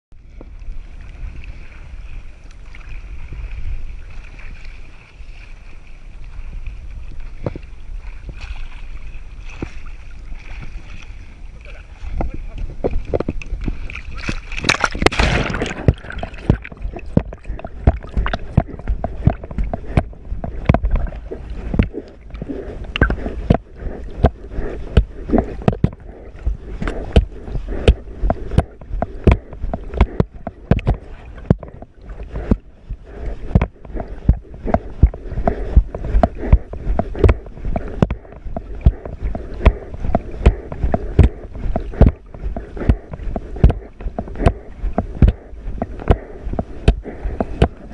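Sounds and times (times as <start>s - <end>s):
low watery rumble: 0.1s - 47.9s
water splashing underwater: 7.2s - 47.9s
loud splash: 14.2s - 16.6s.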